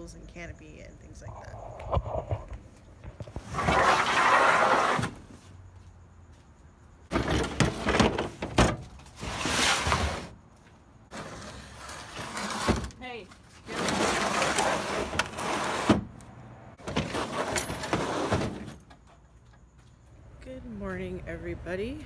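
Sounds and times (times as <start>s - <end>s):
table scraping on truck bed: 3.1s - 5.3s, 7.1s - 10.4s, 11.1s - 13.0s, 13.6s - 16.2s, 16.8s - 19.0s.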